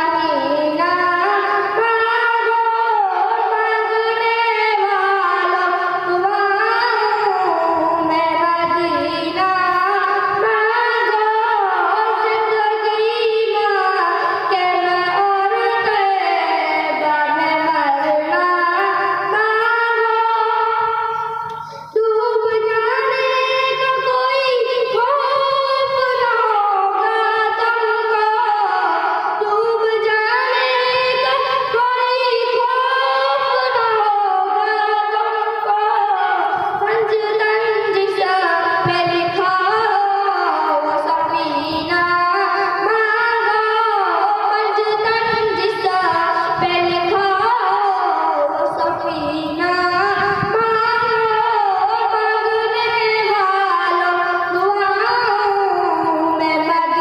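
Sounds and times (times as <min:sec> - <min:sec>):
boy singing devotional song: 0:00.0 - 0:57.0.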